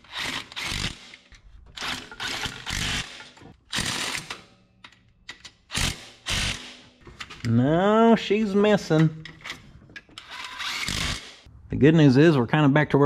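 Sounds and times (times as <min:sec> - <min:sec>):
metal hardware rattling: 0:07.0 - 0:07.8, 0:08.7 - 0:11.3.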